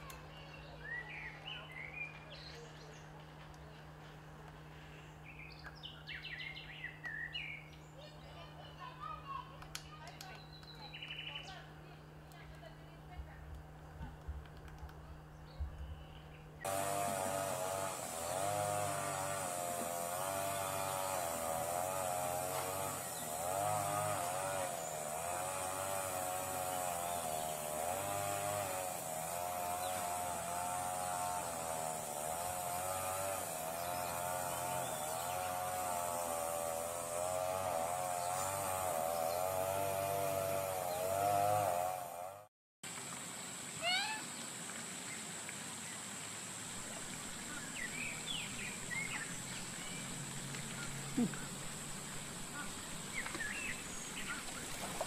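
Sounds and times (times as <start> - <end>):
outdoor ambience: 0.0 - 55.0.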